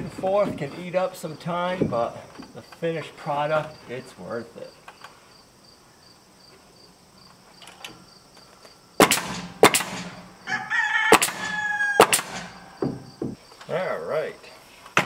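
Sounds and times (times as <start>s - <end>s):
crickets chirping: 0.0s - 15.0s
nail gun firing: 9.0s - 10.3s, 11.1s - 13.3s
rooster crowing: 10.4s - 12.8s.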